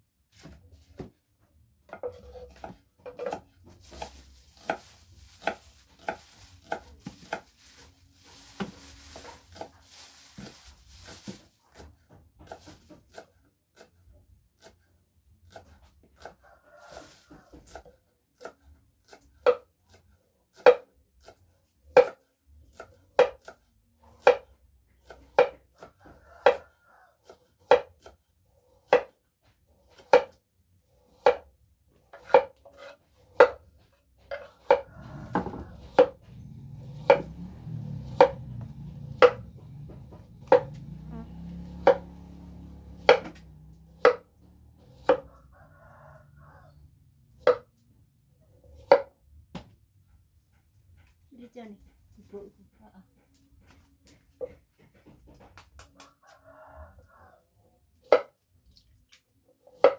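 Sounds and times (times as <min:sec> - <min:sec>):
knife chopping on wooden board: 0:01.9 - 0:07.9, 0:08.5 - 0:16.4, 0:17.4 - 0:45.3, 0:47.3 - 0:47.8, 0:48.6 - 0:49.8, 0:58.0 - 0:58.4, 0:59.7 - 0:59.9.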